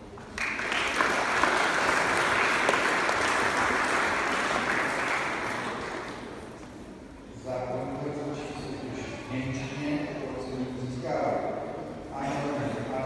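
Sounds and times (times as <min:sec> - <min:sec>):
audience clapping: 0:00.1 - 0:06.4.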